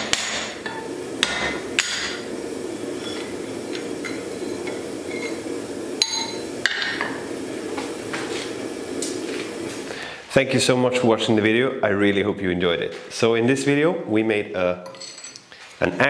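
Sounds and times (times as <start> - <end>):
low steady hum: 0.0 - 10.2.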